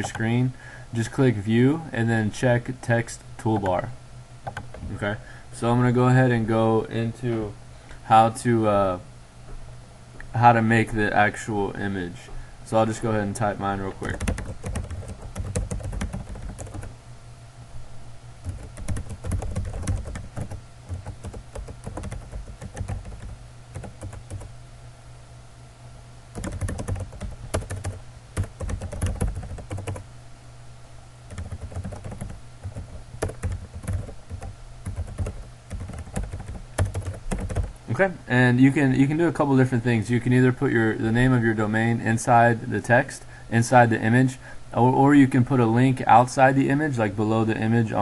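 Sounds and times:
low steady hum: 0.0 - 48.0
computer keyboard typing: 4.4 - 4.9, 14.0 - 16.9, 18.4 - 24.5, 26.4 - 30.0, 31.3 - 37.7.

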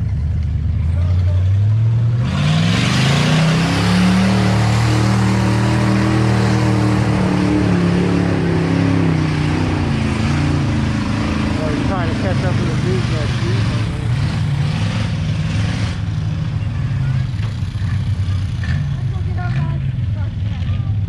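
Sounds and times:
engine revving under throttle: 1.6 - 16.5.

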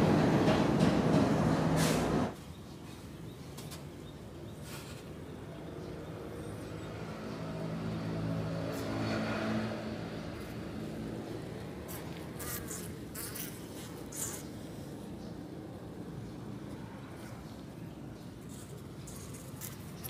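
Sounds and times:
honeybee colony buzzing: 8.5 - 14.7.

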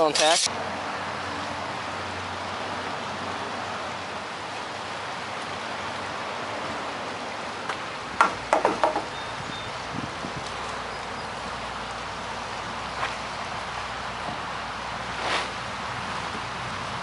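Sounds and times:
river rushing over riffles: 0.5 - 8.5.

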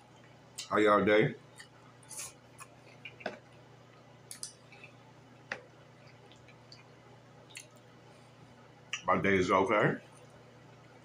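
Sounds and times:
person chewing food: 1.5 - 7.9.

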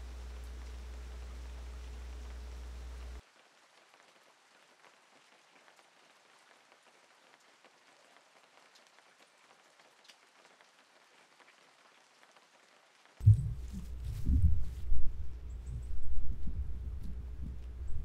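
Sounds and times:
light rain pattering: 0.0 - 18.0
faint drip ticks: 6.7 - 10.7.

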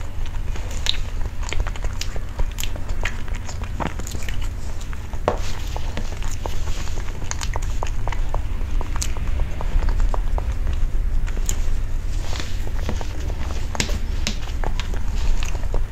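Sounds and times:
steady low hum: 0.0 - 15.9
wet chewing and smacking: 0.0 - 15.9.

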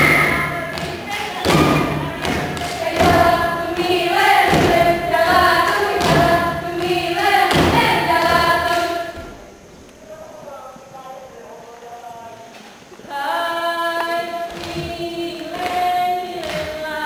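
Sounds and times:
hand claps and body slaps: 0.0 - 9.0, 15.5 - 16.8
group chanting in unison: 0.0 - 9.5, 13.0 - 17.0.

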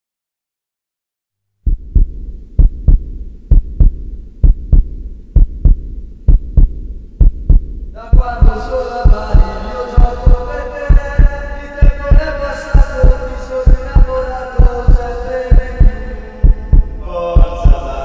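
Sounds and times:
heartbeat thumps: 1.7 - 18.0.

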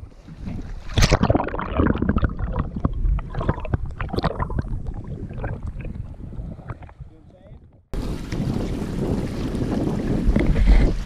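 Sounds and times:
muffled underwater water sloshing: 0.0 - 11.0
sharp splash: 0.7 - 2.7.

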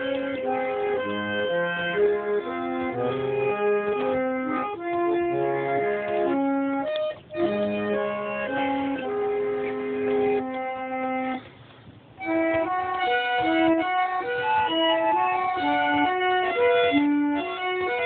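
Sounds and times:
reed organ playing chords: 0.0 - 18.0.

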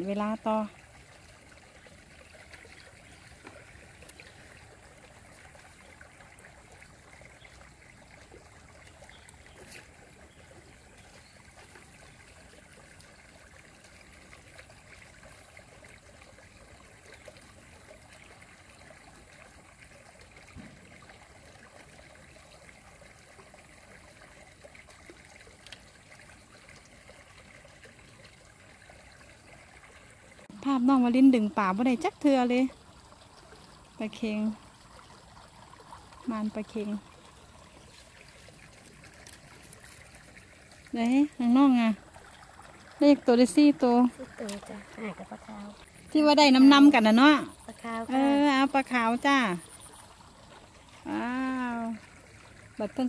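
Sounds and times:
water trickling: 0.0 - 53.0
small ticks: 25.6 - 25.9.

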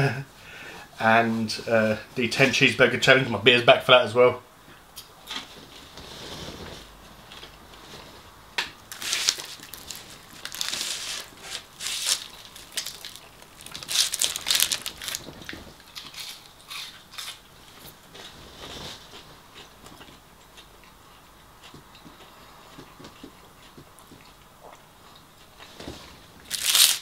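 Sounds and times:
crunching of crisp food: 8.9 - 27.0.

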